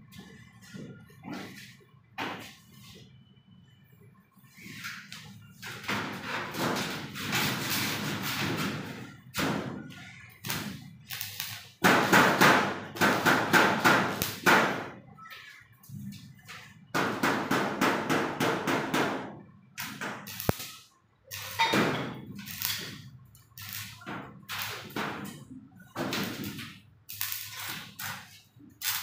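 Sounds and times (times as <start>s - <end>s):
arc welding crackling and sizzling: 5.0s - 14.9s, 19.7s - 29.0s.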